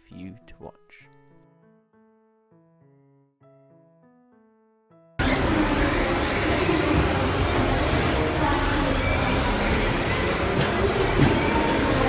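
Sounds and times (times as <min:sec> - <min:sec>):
rc car motors whining: 0:05.2 - 0:12.0.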